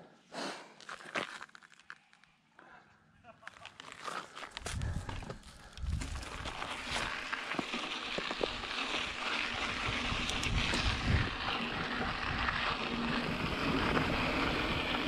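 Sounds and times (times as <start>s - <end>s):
bike tyres crunching on dirt: 0.8s - 2.3s, 3.4s - 15.0s
wind noise on microphone: 4.6s - 7.2s, 8.5s - 15.0s.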